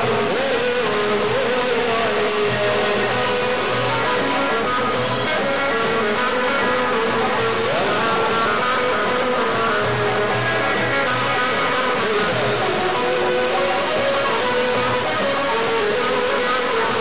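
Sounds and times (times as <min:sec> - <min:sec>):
bowed violin: 0:00.0 - 0:17.0
plucked lutes: 0:00.0 - 0:17.0.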